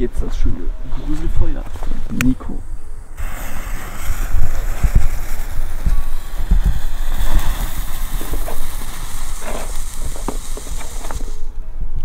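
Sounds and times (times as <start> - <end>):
wind buffeting microphone: 0.0 - 12.0
firework fountain hissing spray: 1.8 - 11.6
fizzing fuse: 2.1 - 11.5.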